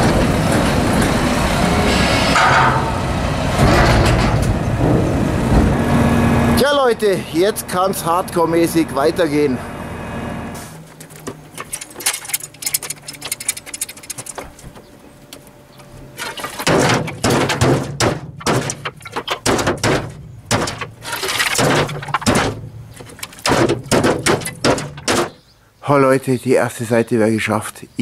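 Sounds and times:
clay roof tiles clattering: 10.8s - 25.5s.

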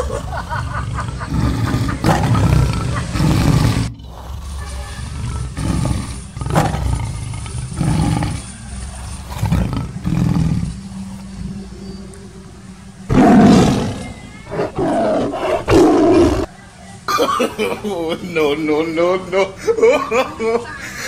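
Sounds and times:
tiger growling and roaring: 0.0s - 16.6s.

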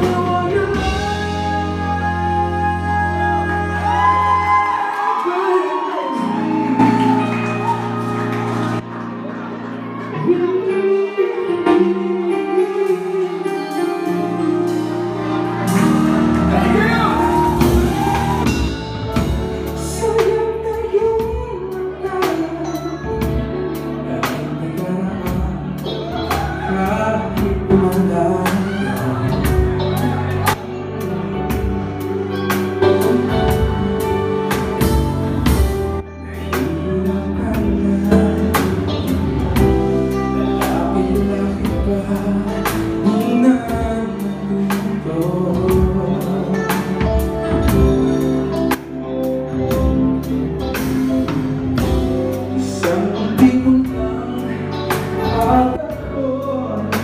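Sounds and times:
man singing into a microphone: 0.0s - 7.6s, 10.1s - 14.7s, 19.2s - 31.3s, 36.1s - 48.6s, 51.2s - 57.0s
live band playing: 0.0s - 57.0s.

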